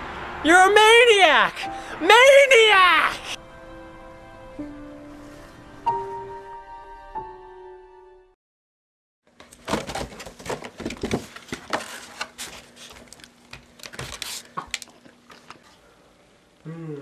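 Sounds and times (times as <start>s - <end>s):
cardboard box rustling: 9.6s - 13.2s
faint steady hum: 10.5s - 17.0s.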